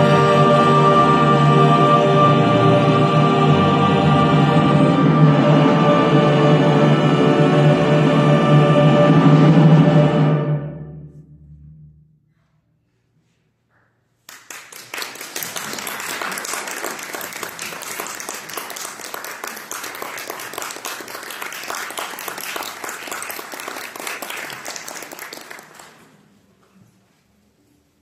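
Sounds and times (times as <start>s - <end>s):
audience applauding: 14.3s - 26.2s.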